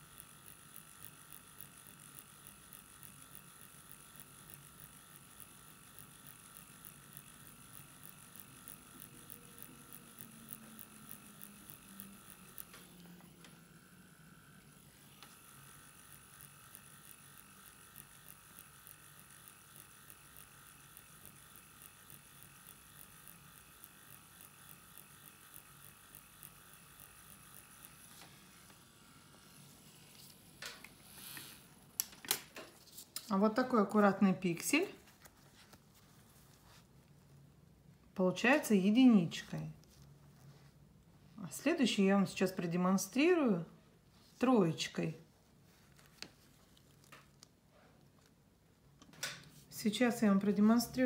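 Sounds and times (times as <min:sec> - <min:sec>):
tattoo pen machine buzzing: 0:00.0 - 0:34.9, 0:38.3 - 0:40.0, 0:49.5 - 0:51.0.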